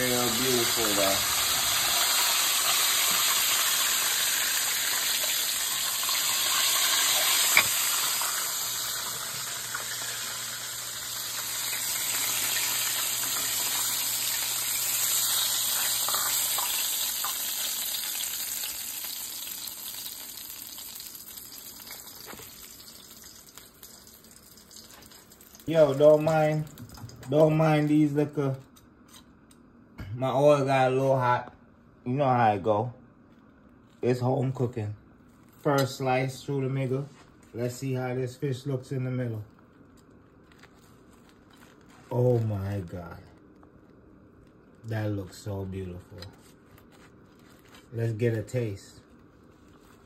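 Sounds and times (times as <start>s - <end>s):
fish frying in hot oil: 0.0s - 27.2s.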